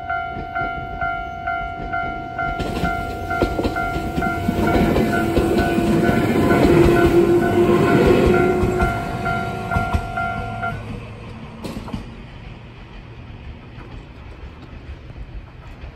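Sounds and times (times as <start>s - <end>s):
level crossing warning bell: 0.0s - 11.0s
train wheels clattering: 0.0s - 15.9s.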